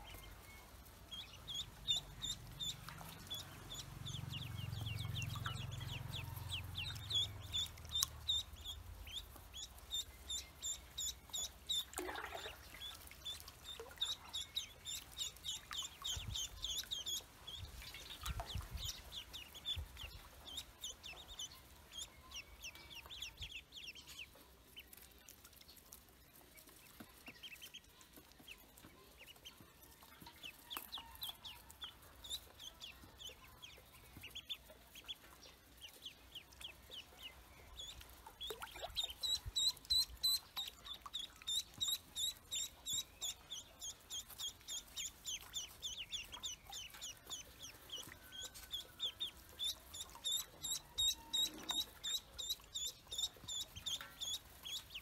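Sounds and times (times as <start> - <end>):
ducklings peeping: 0.0 - 55.0.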